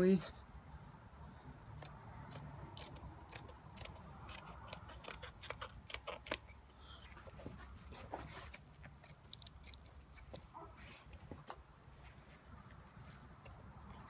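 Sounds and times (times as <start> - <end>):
scissors snipping fabric: 1.7 - 6.6, 13.4 - 14.0.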